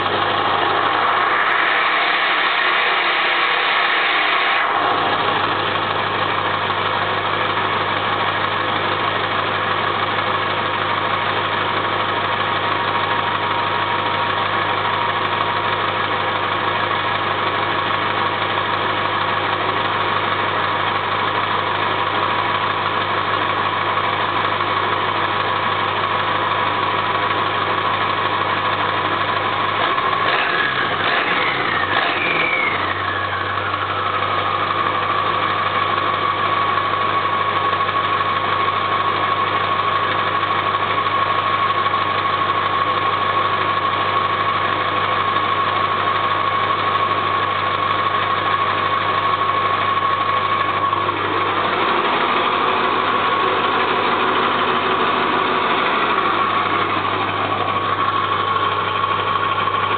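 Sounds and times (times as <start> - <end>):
diesel engine idling: 0.0 - 4.0, 4.6 - 59.9
high-pitched turbo whine: 0.0 - 7.2, 29.7 - 37.9, 45.0 - 59.9.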